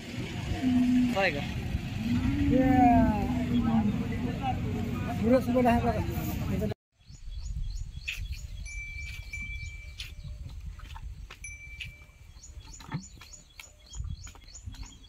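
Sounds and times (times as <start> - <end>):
low wind rumble on microphone: 0.0 - 15.0
small birds chirping: 7.0 - 15.0
small brass bell clinking: 8.7 - 10.0, 11.4 - 12.4.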